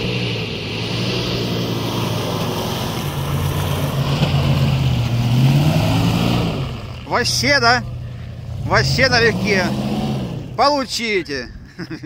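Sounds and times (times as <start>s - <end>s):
car engine pulling hard: 0.0s - 12.0s.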